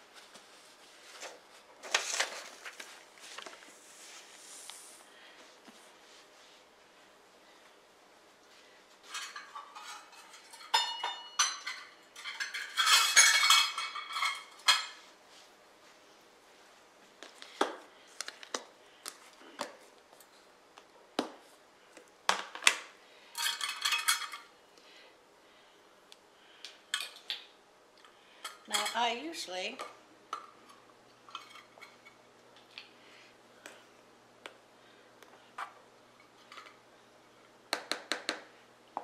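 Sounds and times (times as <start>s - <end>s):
metal utensils clinking: 9.1s - 15.0s, 23.4s - 24.5s, 28.4s - 29.1s.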